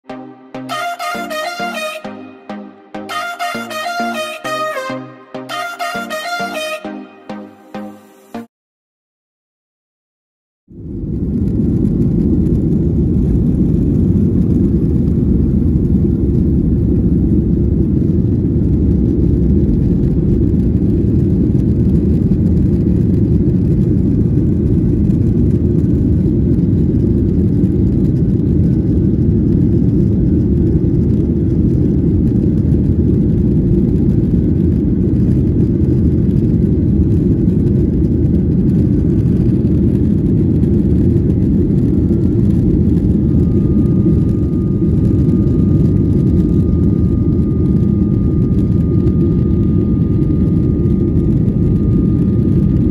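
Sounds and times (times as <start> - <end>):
jet engines at climb power: 10.9 - 52.9.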